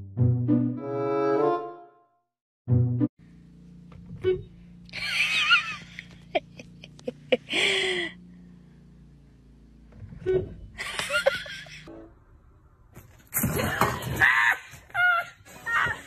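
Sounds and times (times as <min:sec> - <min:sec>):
person laughing and giggling: 0:04.9 - 0:08.1, 0:10.8 - 0:11.9.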